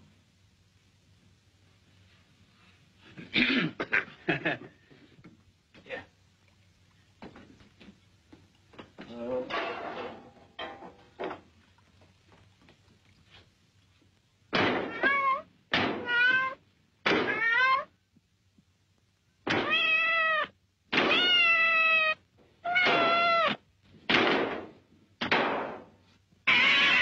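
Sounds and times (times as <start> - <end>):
cat meowing: 14.8 - 16.6, 17.2 - 17.9, 19.6 - 23.6, 26.4 - 27.0.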